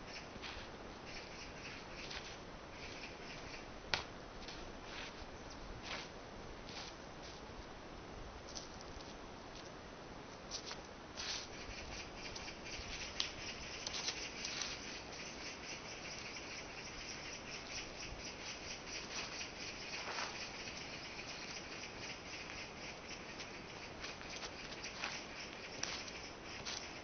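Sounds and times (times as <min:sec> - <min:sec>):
steady crackling hiss: 0:00.0 - 0:27.0
shoes stepping on dirt path: 0:03.9 - 0:07.7, 0:19.0 - 0:20.6, 0:23.4 - 0:27.0.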